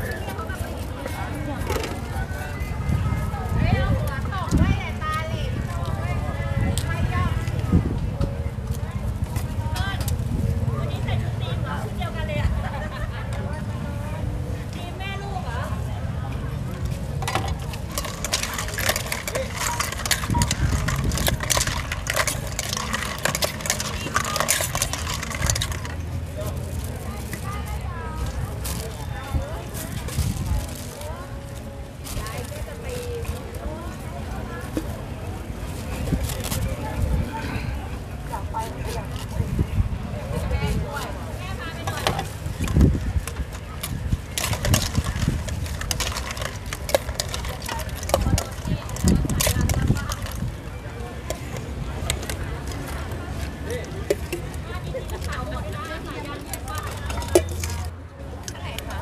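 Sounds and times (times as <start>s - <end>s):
clattering of food prep utensils: 17.2s - 26.2s, 41.8s - 50.5s, 56.0s - 58.6s.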